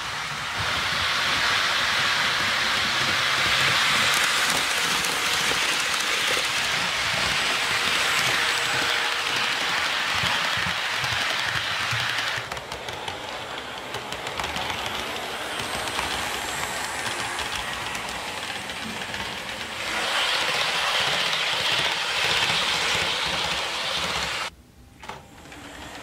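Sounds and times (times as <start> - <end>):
model train rolling hiss: 0.0 - 24.5.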